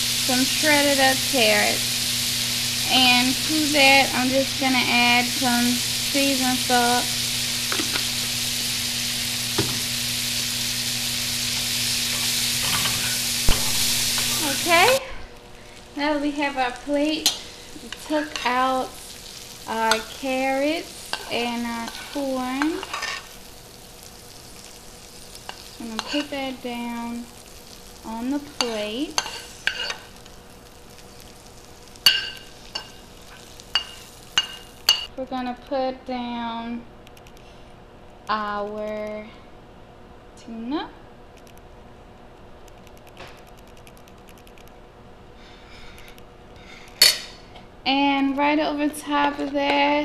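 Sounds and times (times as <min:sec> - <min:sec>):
vegetables sizzling in a frying pan: 0:00.0 - 0:35.1, 0:45.4 - 0:50.0
low steady hiss: 0:00.0 - 0:37.0
metal spoon stirring: 0:21.1 - 0:23.3, 0:25.5 - 0:26.3, 0:28.6 - 0:30.1, 0:32.0 - 0:35.1.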